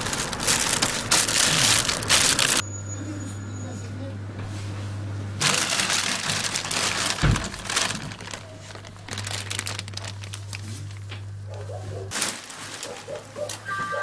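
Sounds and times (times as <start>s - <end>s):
plastic bag rustling: 0.0s - 2.6s, 5.4s - 13.6s.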